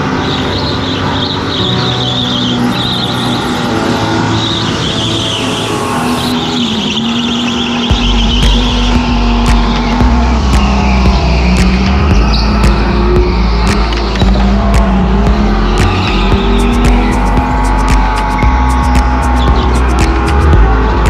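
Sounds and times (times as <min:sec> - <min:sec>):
electric motor whine: 0:00.0 - 0:21.0
go-kart tyres squealing: 0:00.0 - 0:21.0
heavy low rumble: 0:07.7 - 0:21.0.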